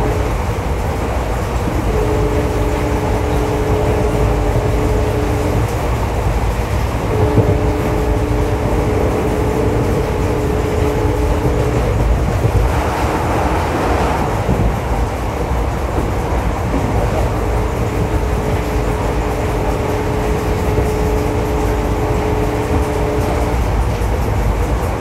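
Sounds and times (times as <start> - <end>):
train wheels rumbling on rail: 0.0 - 25.0
two-note tone: 1.8 - 5.8, 7.0 - 12.4, 17.0 - 23.7.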